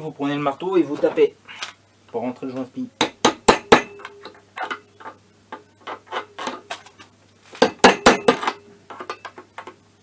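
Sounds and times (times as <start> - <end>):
hammer tapping on metal tube: 3.0 - 4.4.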